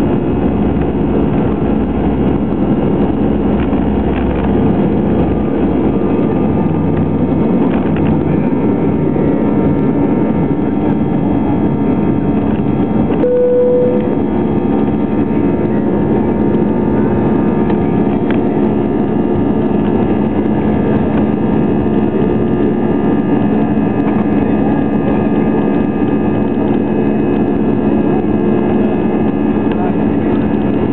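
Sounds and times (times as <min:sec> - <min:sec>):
constant humming tones: 0:00.0 - 0:30.9
jet engine roar in cabin: 0:00.0 - 0:30.9
short clear tone: 0:13.2 - 0:14.2.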